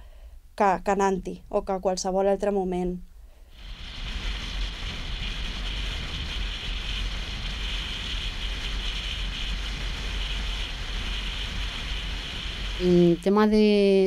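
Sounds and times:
wind buffeting microphone: 0:03.6 - 0:14.0.

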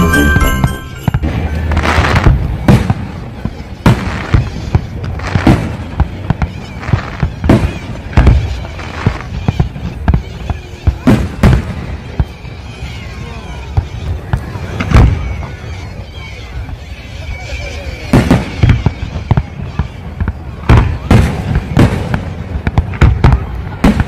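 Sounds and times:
fireworks shells booming: 0:00.0 - 0:12.4, 0:18.1 - 0:24.0.

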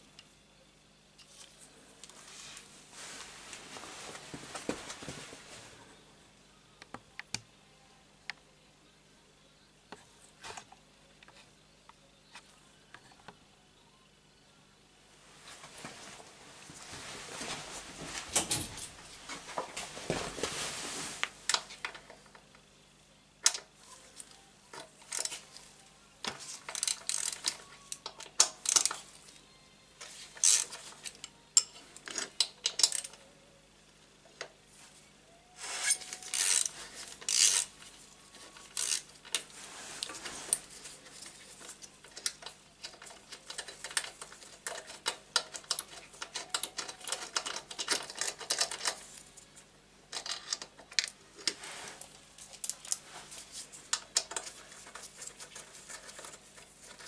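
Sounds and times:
hand tools clicking and rattling: 0:26.4 - 0:29.1, 0:30.4 - 0:33.2, 0:35.8 - 0:37.8, 0:41.2 - 0:49.2.

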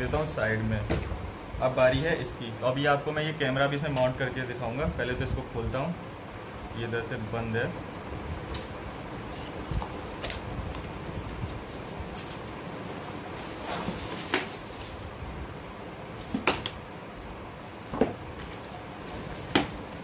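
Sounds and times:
cardboard and plastic rustling: 0:09.3 - 0:15.3, 0:17.8 - 0:20.0.

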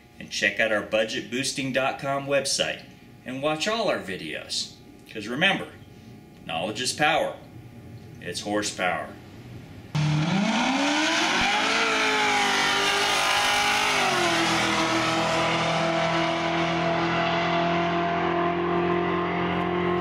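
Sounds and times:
car engine revving: 0:10.0 - 0:20.0.

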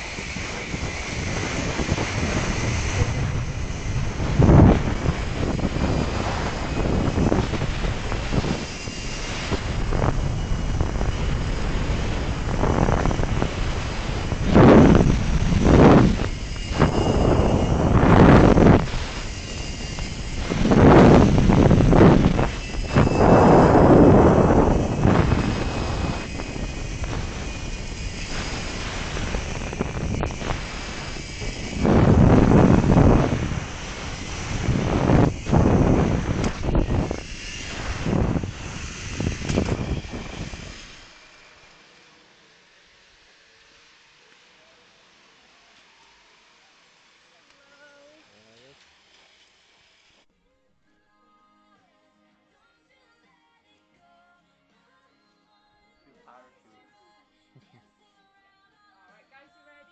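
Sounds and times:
wind buffeting microphone: 0:00.0 - 0:41.1
faint high whine: 0:00.0 - 0:48.9.

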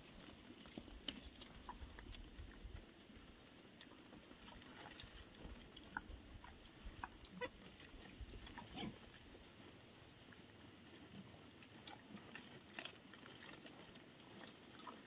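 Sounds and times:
pigs grunting: 0:04.3 - 0:09.6, 0:11.8 - 0:15.0.

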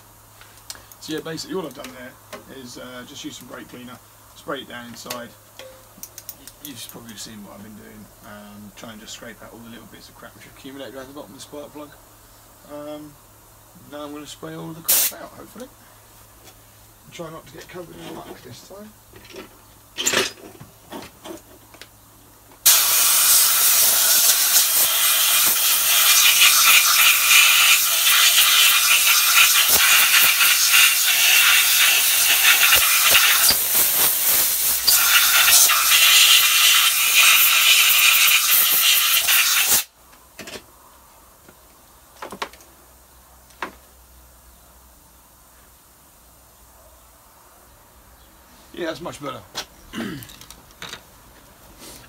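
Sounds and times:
compressed air blow gun hissing: 0:14.9 - 0:15.2, 0:22.6 - 0:39.9.

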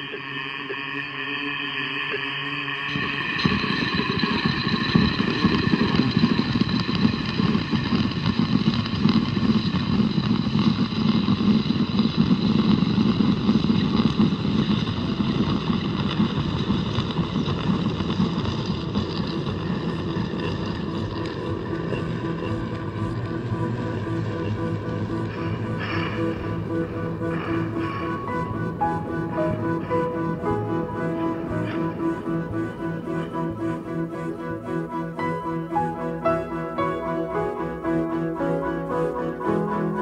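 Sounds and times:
ambient music of held tones: 0:00.0 - 0:40.0
rough low rumble: 0:11.2 - 0:40.0.

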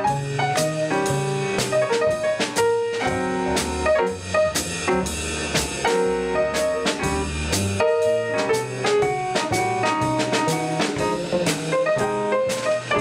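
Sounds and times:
double bass: 0:00.0 - 0:13.0
jazz piano: 0:00.0 - 0:13.0
swing cymbals on drum kit: 0:00.0 - 0:13.0.

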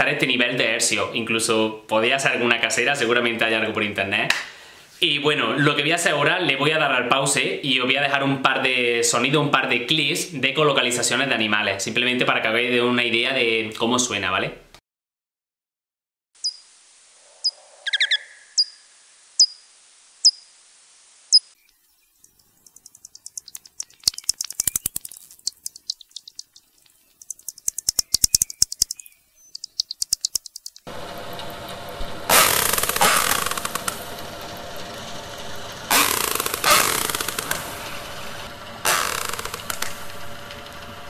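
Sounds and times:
bat echolocation chirps: 0:16.4 - 0:20.5, 0:21.3 - 0:31.3, 0:32.3 - 0:34.1, 0:35.9 - 0:37.7, 0:38.9 - 0:39.9
orca echolocation clicks: 0:22.2 - 0:30.9, 0:38.9 - 0:40.0
rapid bat clicks: 0:22.7 - 0:30.9, 0:35.9 - 0:37.6, 0:38.9 - 0:40.0.

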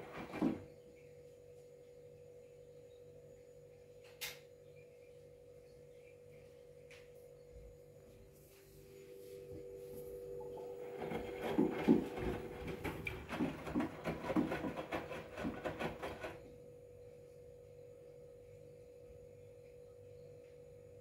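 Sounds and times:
washing machine tumbling and sloshing: 0:00.0 - 0:00.8, 0:10.2 - 0:16.5
steady high hum: 0:00.0 - 0:21.0.

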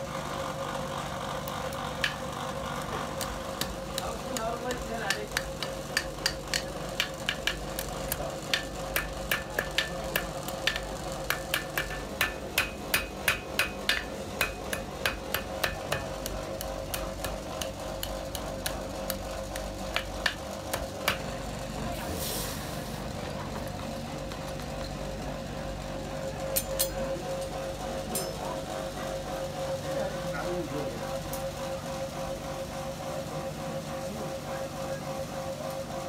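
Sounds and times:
hammer striking iron on anvil: 0:02.0 - 0:02.3, 0:03.1 - 0:21.4, 0:26.6 - 0:28.6
hot iron quenching hiss: 0:21.9 - 0:23.0.

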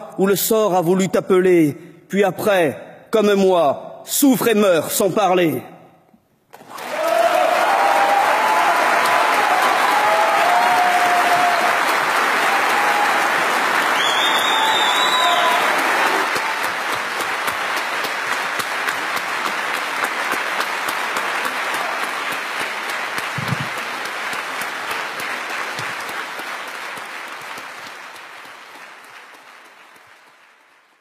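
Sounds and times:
audience applauding: 0:06.5 - 0:31.0.

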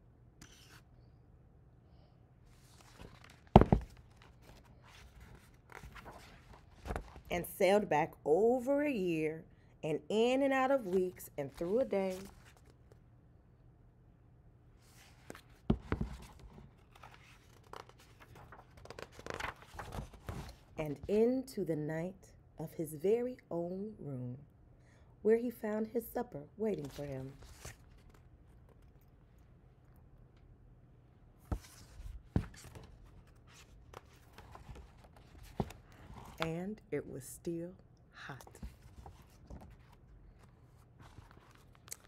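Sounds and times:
faint room hum: 0:00.0 - 0:42.0
book pages rustling and turning: 0:00.4 - 0:00.9, 0:02.5 - 0:07.3, 0:10.8 - 0:13.0, 0:14.8 - 0:20.8, 0:26.7 - 0:29.1, 0:31.4 - 0:36.5, 0:38.4 - 0:42.0
book knocking: 0:03.4 - 0:04.0, 0:15.7 - 0:16.3.

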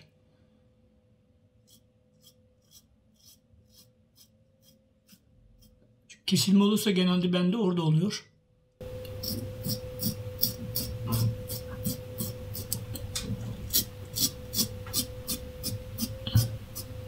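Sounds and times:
razor scraping stubble: 0:01.7 - 0:05.8, 0:09.0 - 0:17.0.

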